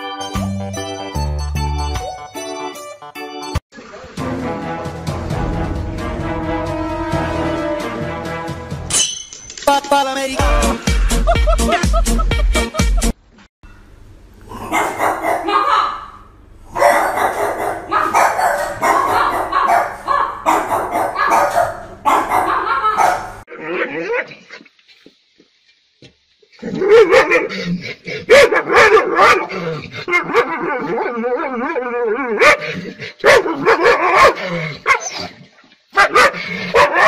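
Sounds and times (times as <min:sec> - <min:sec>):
dogs barking and yipping: 0:14.5 - 0:24.4, 0:26.8 - 0:27.6, 0:28.3 - 0:29.5, 0:30.1 - 0:37.0.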